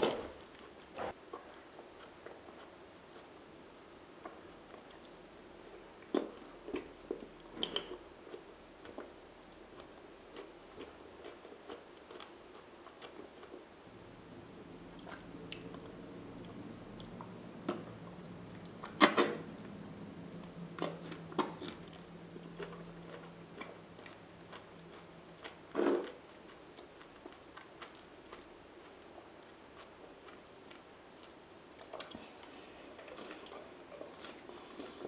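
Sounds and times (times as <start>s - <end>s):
faint low hum: 0.0s - 35.0s
wet mouth eating sounds: 6.0s - 8.0s, 15.0s - 19.4s.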